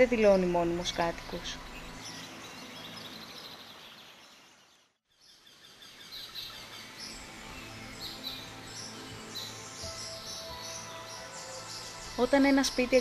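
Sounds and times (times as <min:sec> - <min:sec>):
birds chirping: 0:00.0 - 0:13.0
outdoor ambience: 0:00.0 - 0:13.0.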